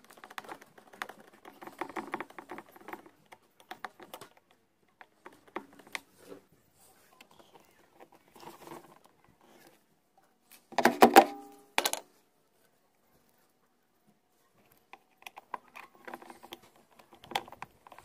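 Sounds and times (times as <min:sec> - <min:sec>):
screwdriver clicking and scraping plastic: 0:00.0 - 0:06.1, 0:14.6 - 0:18.0.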